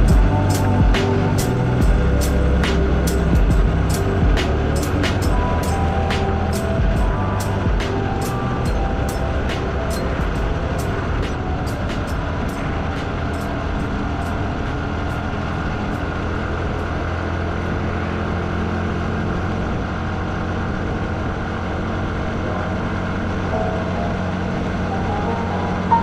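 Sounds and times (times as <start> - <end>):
short stepping-note tune: 0.0 - 17.0, 23.4 - 26.0
motorcycle engine running: 0.0 - 26.0.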